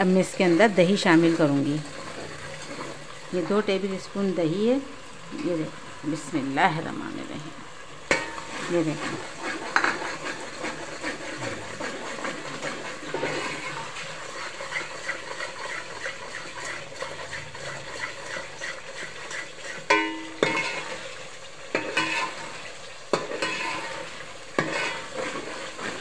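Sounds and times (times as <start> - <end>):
food sizzling: 0.0 - 26.0
metal spoon scraping a pot: 8.1 - 21.1, 21.7 - 26.0
spoon clanking on pot: 19.9 - 21.0, 21.7 - 22.5, 23.1 - 24.0.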